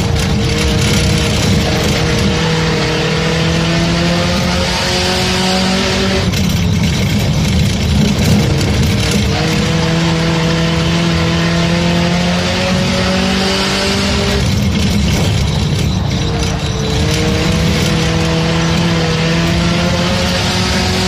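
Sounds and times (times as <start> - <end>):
race car engine at full throttle: 0.0 - 21.0.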